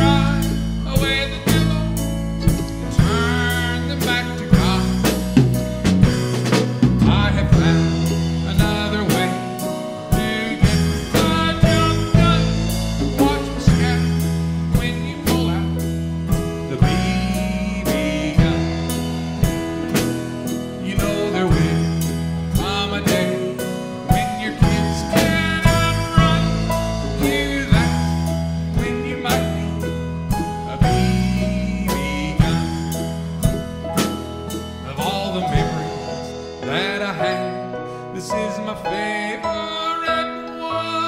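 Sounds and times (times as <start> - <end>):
acoustic guitar strumming: 0.0 - 41.0.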